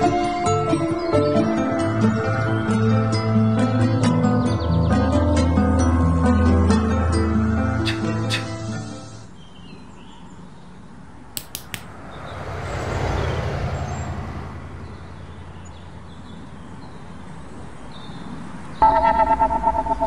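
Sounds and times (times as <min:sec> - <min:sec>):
sharp clicks: 0:11.4 - 0:12.0
rush of noise with rumble: 0:11.8 - 0:15.7.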